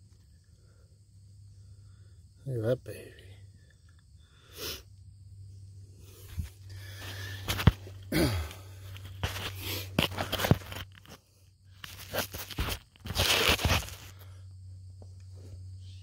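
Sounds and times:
dirt and rock crunching: 6.0 - 14.4
rubbing on camera: 11.8 - 14.1.

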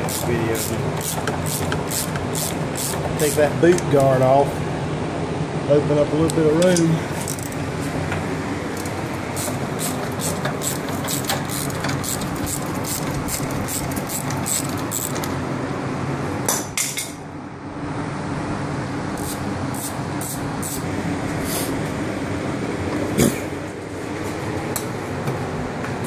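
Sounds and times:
ratchet wrench clicking: 0.0 - 3.4, 9.4 - 15.3, 19.2 - 20.8
steady background hum: 0.0 - 26.0.

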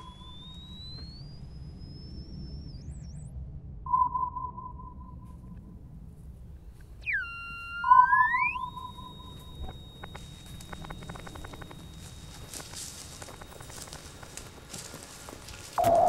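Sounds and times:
high electronic beep: 0.0 - 3.3, 7.0 - 15.0, 15.8 - 16.0
swooping tone into high whine: 0.0 - 16.0
faint clicks: 8.8 - 14.6.

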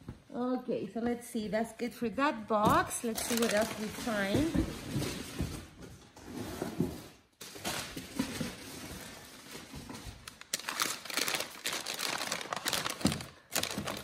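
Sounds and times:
packing paper rustling and crinkling: 2.7 - 5.8, 7.4 - 14.0.

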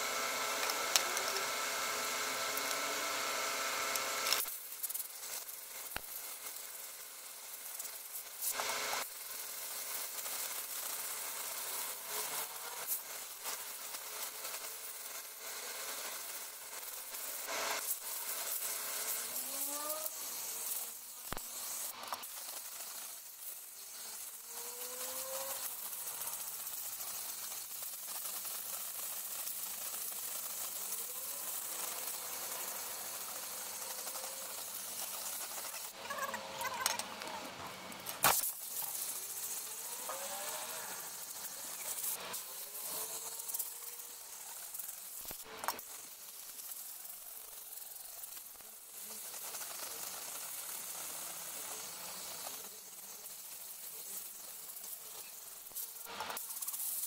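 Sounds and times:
air blow gun hissing: 0.0 - 37.3, 37.9 - 57.0.

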